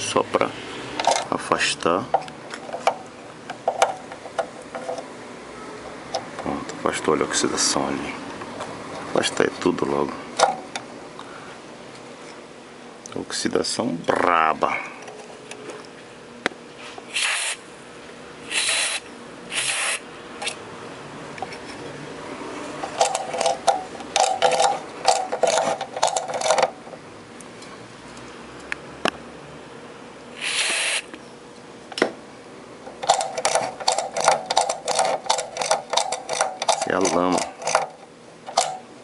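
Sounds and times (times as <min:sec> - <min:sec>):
short hissing bursts: 0:17.1 - 0:17.6, 0:18.4 - 0:20.0, 0:30.4 - 0:31.1.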